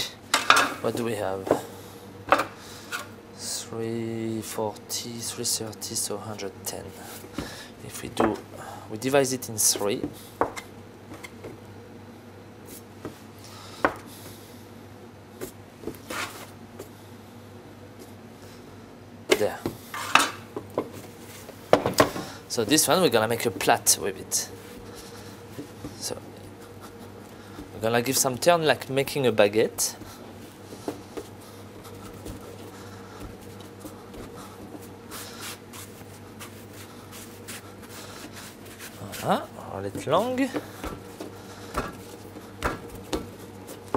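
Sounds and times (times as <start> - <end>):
low steady hum: 0.0 - 43.9
hands rubbing dough on wood: 29.9 - 43.9
dough scraper knocking on wood: 40.5 - 42.0, 42.6 - 43.3.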